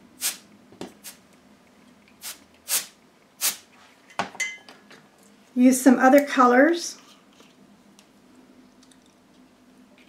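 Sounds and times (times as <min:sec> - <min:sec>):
compressed air hissing: 0:00.2 - 0:00.4, 0:02.2 - 0:03.6.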